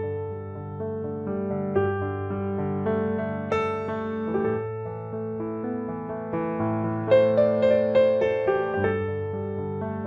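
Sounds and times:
slow piano melody: 0.0s - 10.0s.

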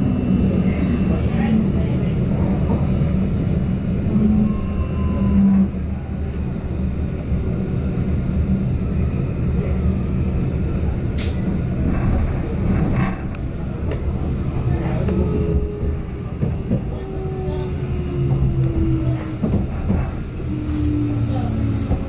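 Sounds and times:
tram wheels rumbling: 0.0s - 22.0s.

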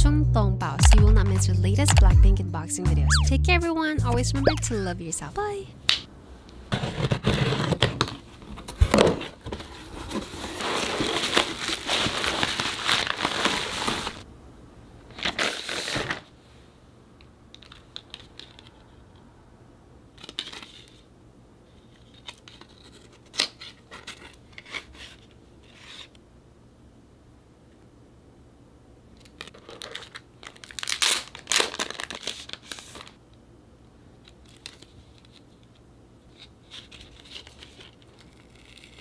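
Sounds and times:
packaging rustling: 7.0s - 14.2s, 29.3s - 33.2s, 36.4s - 39.0s
packaging tearing and crinkling: 10.0s - 14.2s, 15.1s - 16.2s, 29.2s - 33.2s, 36.4s - 39.0s.

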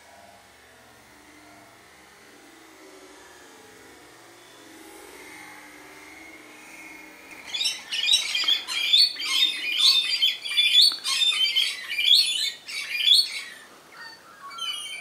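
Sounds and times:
lorikeets screeching: 7.3s - 15.0s.

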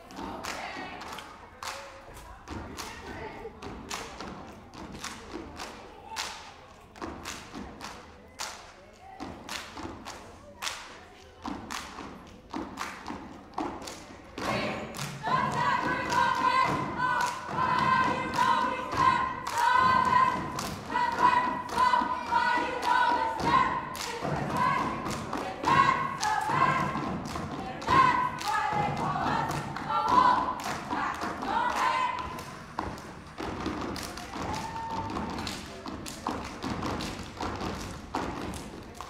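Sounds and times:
stomping and clapping: 0.0s - 39.0s
voices chanting in unison: 14.4s - 32.4s.

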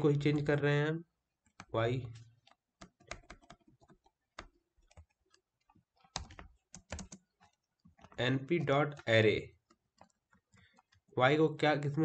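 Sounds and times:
computer keyboard keystrokes: 2.4s - 11.0s.

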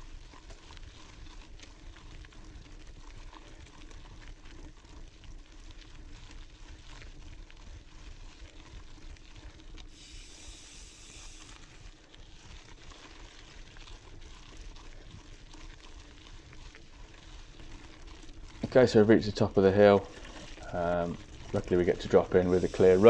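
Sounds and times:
bike tyres rolling on dirt: 0.0s - 23.0s
bright hiss: 9.9s - 11.6s, 22.4s - 23.0s.

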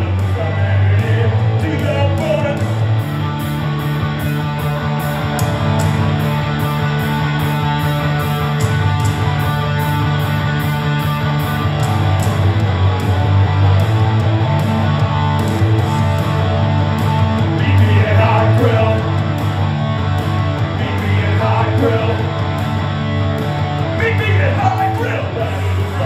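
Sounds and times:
loud electric guitar: 0.0s - 26.0s
rock band playing live: 0.0s - 26.0s
person singing: 17.6s - 19.1s, 20.7s - 22.4s.

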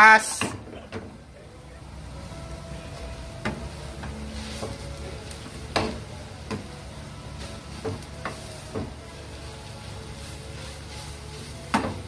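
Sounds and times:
frying sizzle: 1.2s - 12.0s
wooden spatula stirring noodles: 3.0s - 12.0s.

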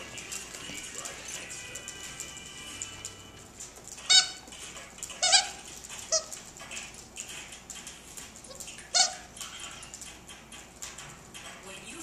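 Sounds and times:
dog toy squeaking: 3.9s - 6.5s, 8.4s - 10.0s.

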